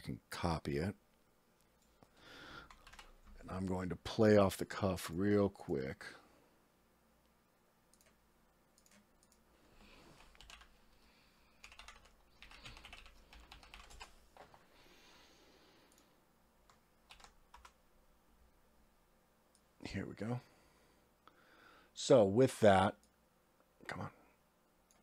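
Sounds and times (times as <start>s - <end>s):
typing on keyboard: 2.6s - 3.2s, 8.8s - 9.4s, 10.2s - 10.7s, 11.6s - 14.2s, 16.7s - 17.8s.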